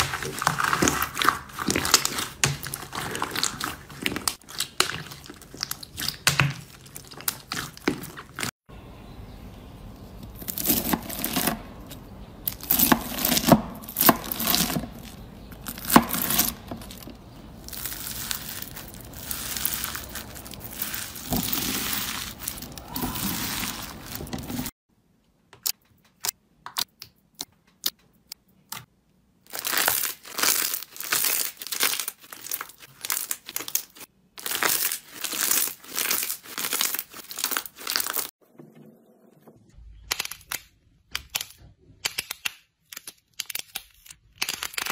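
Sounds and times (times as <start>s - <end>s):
slime crackling and crinkling: 0.0s - 8.6s, 12.5s - 24.8s, 29.4s - 38.4s.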